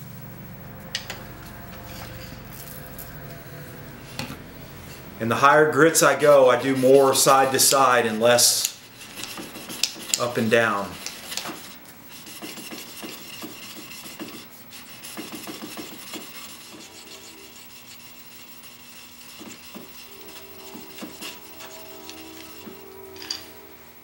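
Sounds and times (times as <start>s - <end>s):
chisel honing on sharpening stone: 8.4s - 23.4s.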